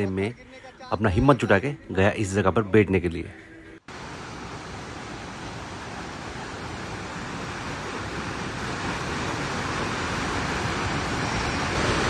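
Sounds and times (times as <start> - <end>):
waterfall rushing onto rocks: 3.9 - 12.0.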